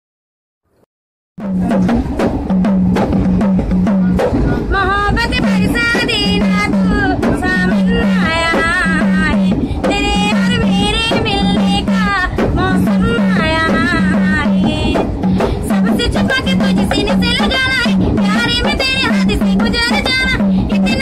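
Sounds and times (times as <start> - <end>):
hand-held frame drum beat: 1.4 - 21.0
girl singing: 4.7 - 21.0.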